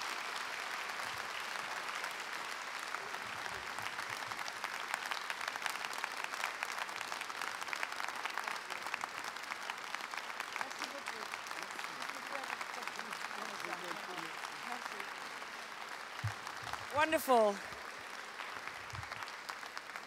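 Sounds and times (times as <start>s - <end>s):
audience applauding: 0.0s - 20.0s.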